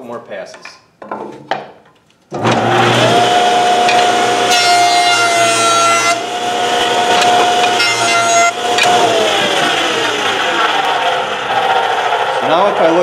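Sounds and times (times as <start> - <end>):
jointer cutterhead whine: 2.3 - 13.0
knives cutting wood: 3.8 - 6.2, 7.1 - 9.8.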